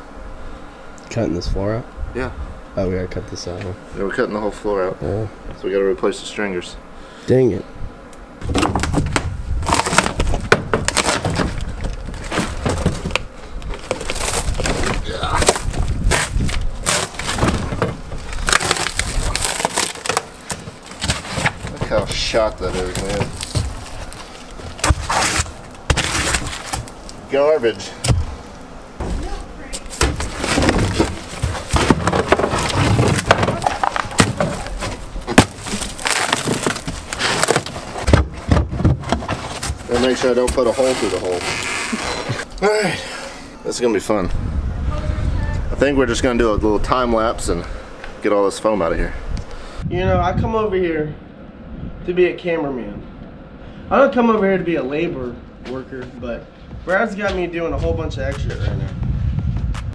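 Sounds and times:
plywood cracking and splintering: 8.4s - 27.2s, 29.8s - 42.4s.

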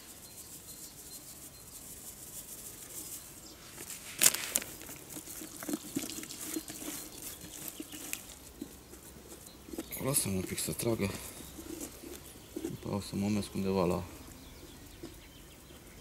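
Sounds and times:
dry powder pouring: 0.0s - 8.9s
hand kneading bait rustling: 0.0s - 15.3s
sharp plastic crackle: 3.8s - 8.6s.

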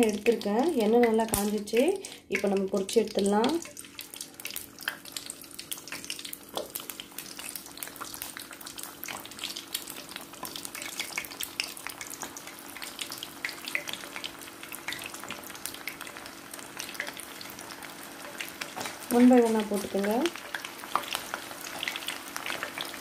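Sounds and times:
prawns deep-frying in hot oil: 0.0s - 23.0s.

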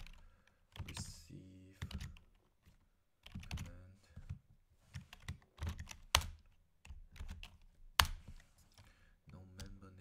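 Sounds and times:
typing on computer keyboard: 0.0s - 1.2s, 1.8s - 2.5s, 3.2s - 8.2s.

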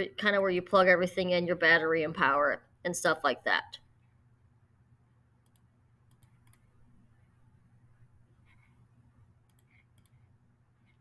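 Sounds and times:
computer mouse clicks: 5.4s - 6.7s, 9.4s - 11.0s.

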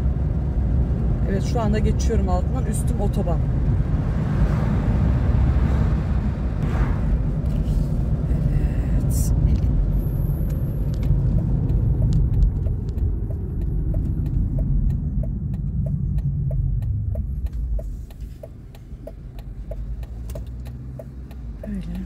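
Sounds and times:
car engine and road rumble: 0.0s - 22.0s
turn signal ticking: 8.1s - 22.0s.

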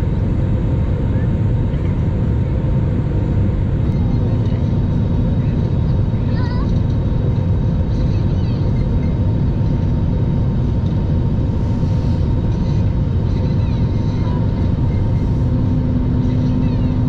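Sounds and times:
vehicle engine and road rumble: 0.0s - 17.0s.

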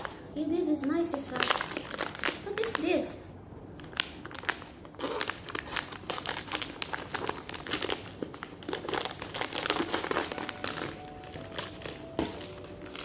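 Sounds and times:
plastic bag crinkling: 0.0s - 3.1s, 3.7s - 13.0s
scissors cutting plastic: 4.4s - 13.0s.

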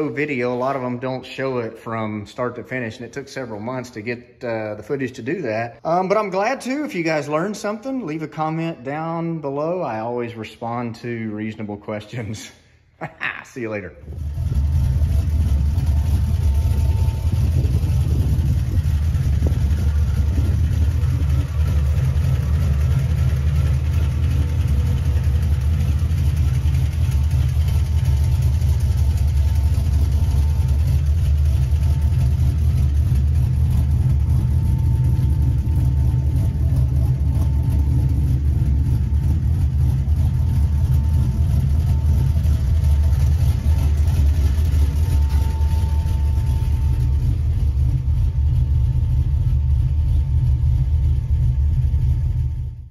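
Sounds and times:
pickup engine idling: 14.0s - 52.9s.

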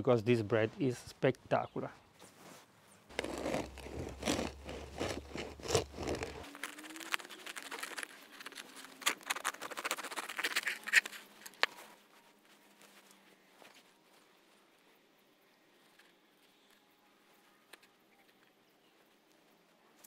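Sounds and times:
bread knife sawing crusty loaf: 3.1s - 6.4s.

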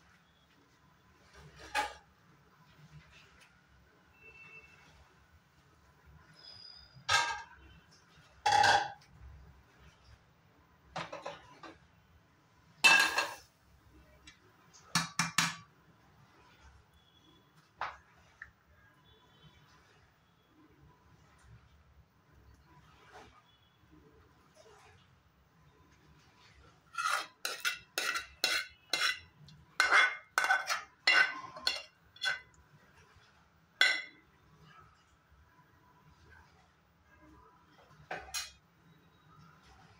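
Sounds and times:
ladle clinking on metal pan: 8.5s - 9.0s, 12.8s - 13.4s, 27.0s - 32.5s, 33.8s - 34.2s.

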